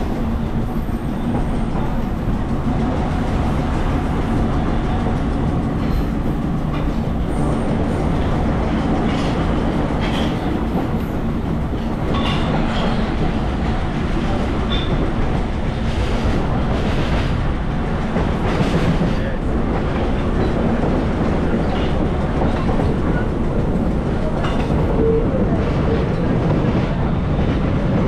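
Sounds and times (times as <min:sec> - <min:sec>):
rail joint clicks: 0:00.0 - 0:28.0
train wheels rumbling on rail: 0:00.0 - 0:28.0.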